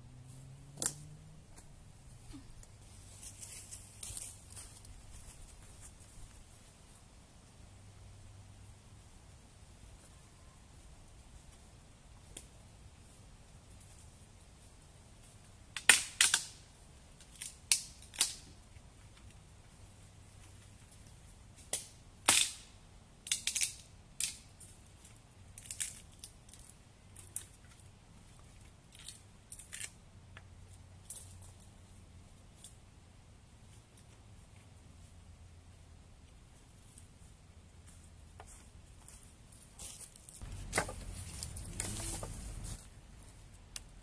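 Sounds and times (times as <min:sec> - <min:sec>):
dry sticks snapping: 0:00.7 - 0:01.7, 0:15.8 - 0:16.6, 0:17.2 - 0:18.5, 0:21.6 - 0:22.6, 0:23.2 - 0:24.8, 0:25.6 - 0:27.8, 0:28.9 - 0:30.0.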